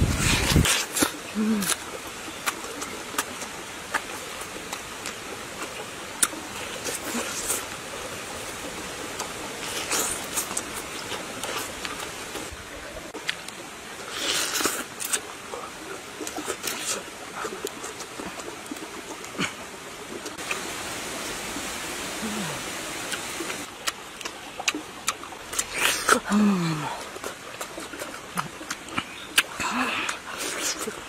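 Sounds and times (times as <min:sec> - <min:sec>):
slurping: 0:00.0 - 0:07.8, 0:08.4 - 0:12.5, 0:22.2 - 0:31.0
chewing soft juicy food: 0:00.1 - 0:20.6, 0:22.2 - 0:31.0
steady hiss: 0:19.5 - 0:23.7.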